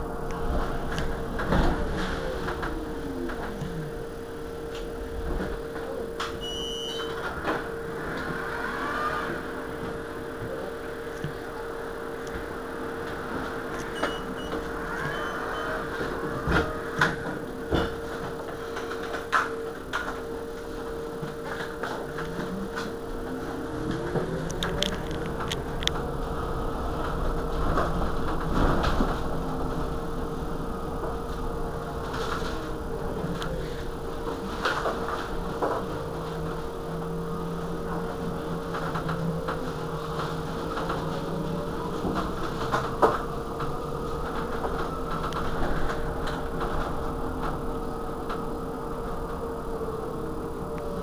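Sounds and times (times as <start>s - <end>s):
electric bus whine: 0.0s - 51.0s
rising whine: 6.1s - 18.5s
short high beep: 6.4s - 7.1s, 13.9s - 15.8s.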